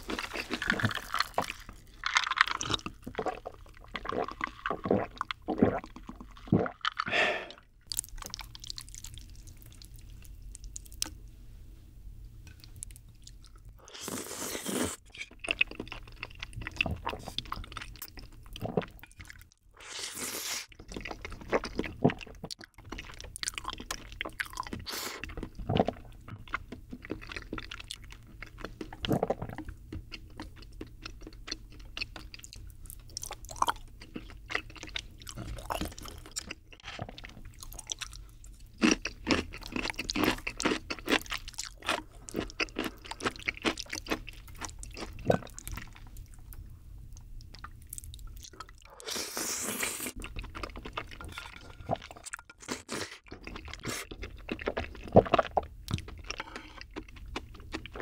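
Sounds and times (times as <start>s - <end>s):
noodles slurped from a spoon: 13.9s - 15.1s.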